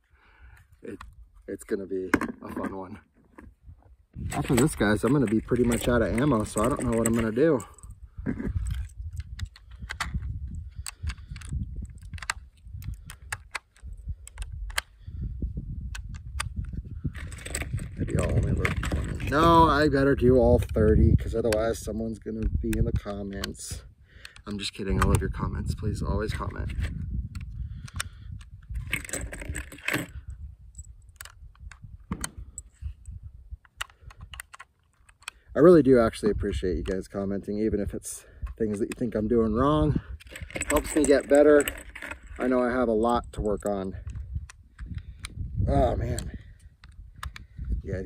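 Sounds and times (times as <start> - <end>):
wind rumble on microphone: 3.4 - 34.6, 35.4 - 48.0.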